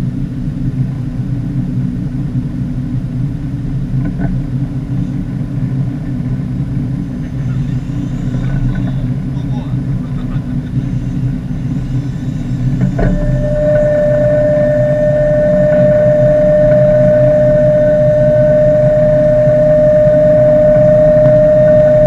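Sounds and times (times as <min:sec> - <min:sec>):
boat engine humming: 0:00.0 - 0:22.0
electric fishing reel whine: 0:07.0 - 0:09.2, 0:10.6 - 0:22.0.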